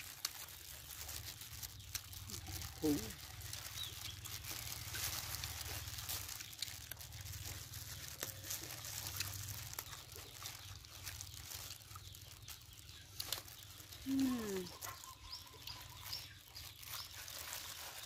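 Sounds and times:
leaves crackling and crunching: 0:00.0 - 0:18.0
plastic gloves crinkling: 0:00.0 - 0:18.0.

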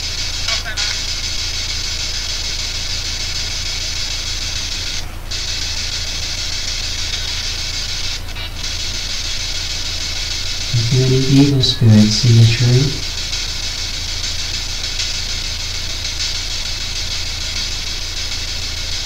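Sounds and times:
radio static hiss: 0:10.6 - 0:13.3
man's voice: 0:10.8 - 0:13.1
low hum: 0:10.8 - 0:13.2.

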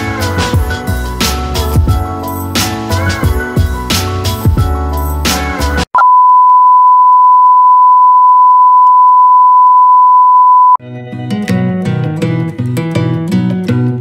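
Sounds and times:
guitar background music: 0:00.0 - 0:05.8, 0:10.8 - 0:14.0
steady test tone beep: 0:06.0 - 0:10.8.

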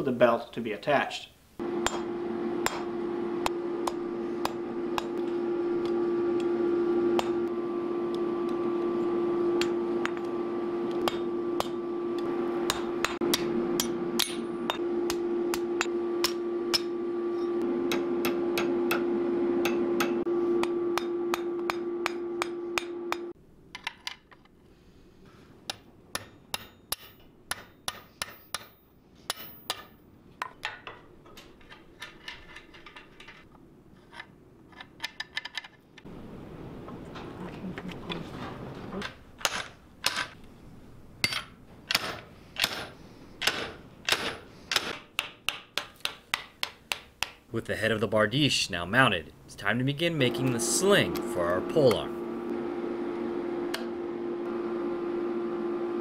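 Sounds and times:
steady hum: 0:01.5 - 0:23.4, 0:49.3 - 0:56.0
hammer striking iron on anvil: 0:01.8 - 0:02.9, 0:11.0 - 0:11.8, 0:12.7 - 0:23.3, 0:25.7 - 0:30.0.

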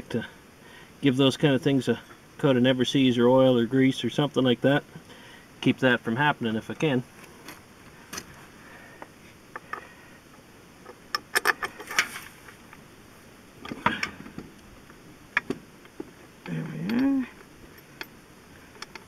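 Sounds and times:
metallic clicks of bolts: 0:11.1 - 0:12.1.

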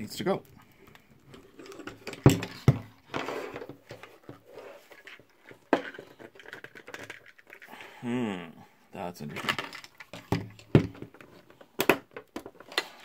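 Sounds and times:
light rattling and scraping: 0:00.8 - 0:07.8.

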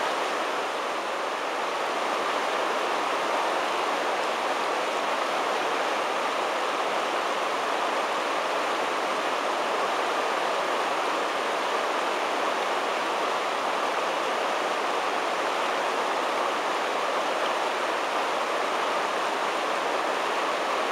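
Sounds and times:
whitewater rushing: 0:00.0 - 0:20.9.

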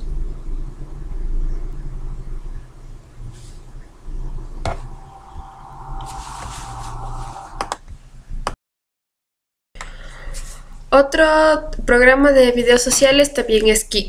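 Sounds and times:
low steady hum: 0:00.0 - 0:07.8
held mid-pitched tone: 0:04.6 - 0:07.7
hiss: 0:04.7 - 0:07.7.

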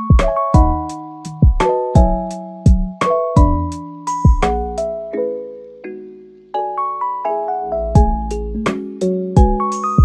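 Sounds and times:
keyboard notes: 0:00.0 - 0:10.0
kick drum thumps: 0:00.1 - 0:03.6, 0:04.2 - 0:04.6, 0:08.0 - 0:08.2, 0:09.4 - 0:09.6.

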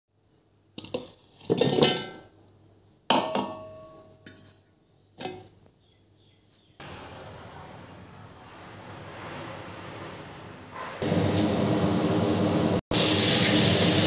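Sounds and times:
vegetables clunking into steel jar: 0:03.1 - 0:04.5, 0:05.2 - 0:05.6.

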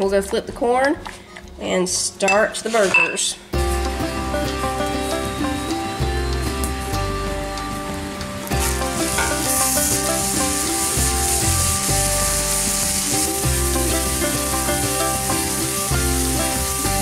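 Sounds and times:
background music: 0:00.0 - 0:17.0
meat patties sizzling on griddle: 0:08.5 - 0:17.0.

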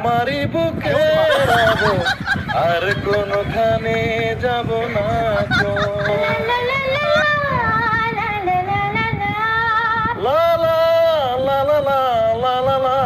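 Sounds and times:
person singing unaccompanied: 0:00.0 - 0:13.0.

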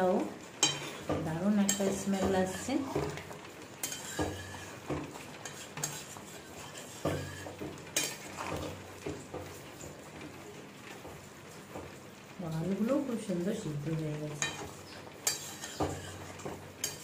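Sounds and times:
metal spatula scraping metal pot: 0:00.6 - 0:08.8, 0:14.4 - 0:17.0.

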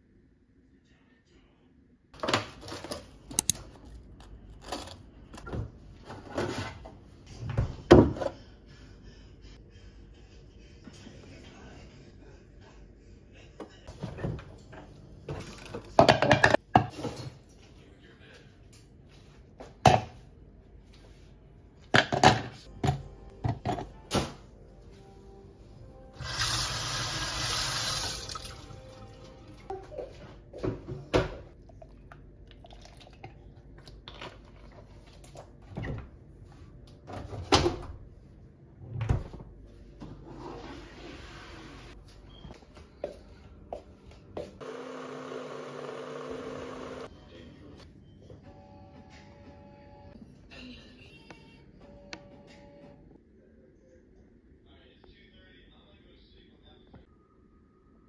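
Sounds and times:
fridge door and drawer noises: 0:04.6 - 0:08.4, 0:37.0 - 0:38.0.

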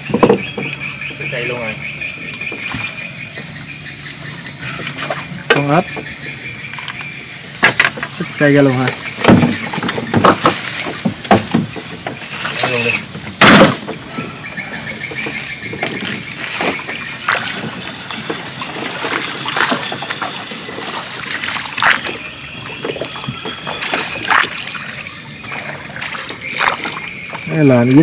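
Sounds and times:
water splashing and sloshing: 0:00.0 - 0:28.0
knocks: 0:09.2 - 0:12.2.

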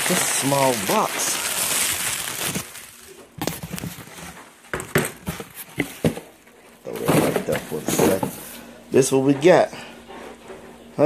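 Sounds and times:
bubble wrap crinkling: 0:00.0 - 0:04.6
crackles and knocks of handling: 0:00.7 - 0:08.5.

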